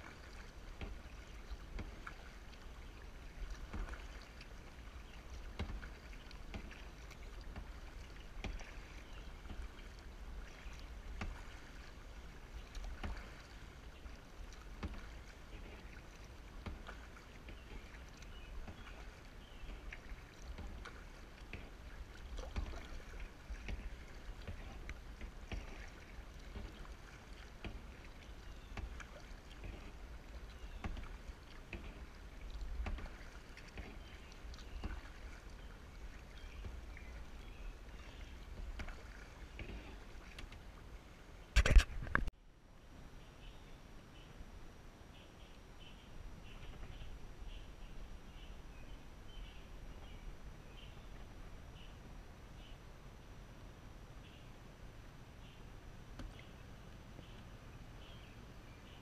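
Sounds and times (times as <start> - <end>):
kayak paddle splashing in water: 0.0 - 42.2.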